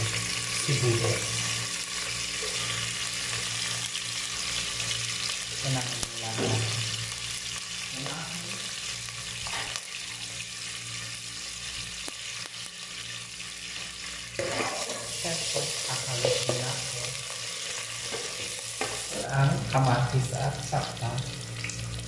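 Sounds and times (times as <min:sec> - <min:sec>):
garlic and onion sizzling in oil: 0:00.0 - 0:22.0
spatula stirring in pot: 0:14.4 - 0:16.7.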